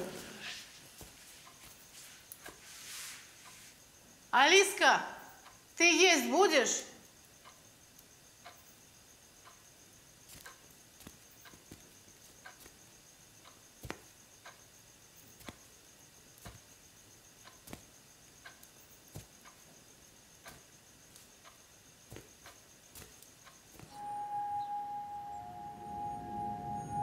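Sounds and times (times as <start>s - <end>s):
faint high whine: 18.0s - 27.0s.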